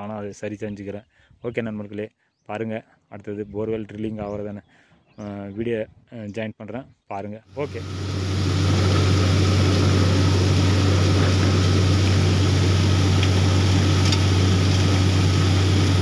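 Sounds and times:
drilling rig engine drone: 7.6s - 16.0s
water gushing hiss: 7.6s - 16.0s.

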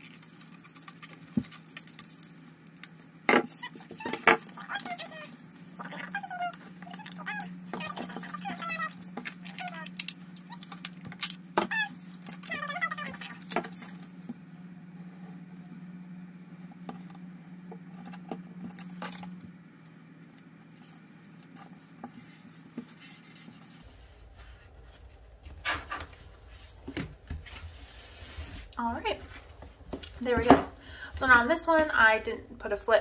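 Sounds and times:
paper rubbing on tabletop: 22.0s - 25.6s, 27.4s - 29.7s.

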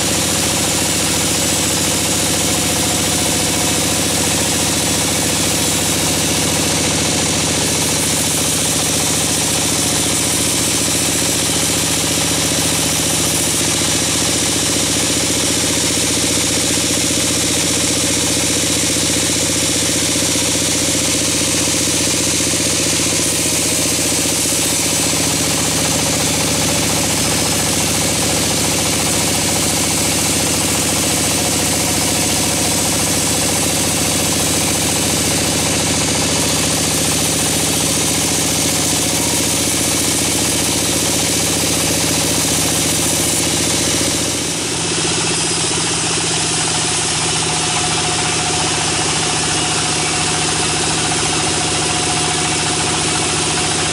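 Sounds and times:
band saw cutting wood: 0.0s - 53.9s.

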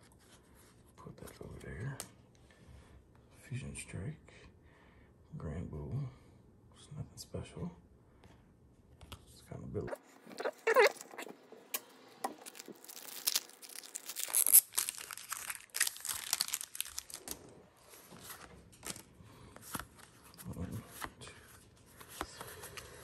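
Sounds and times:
cards being handled: 10.2s - 23.0s
foil wrapper tearing and crinkling: 12.3s - 17.6s.

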